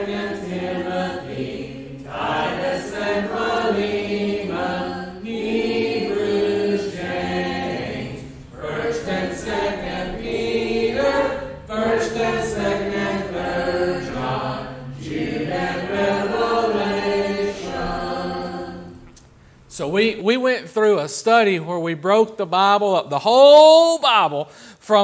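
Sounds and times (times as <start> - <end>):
group singing unaccompanied: 0.0 - 19.1.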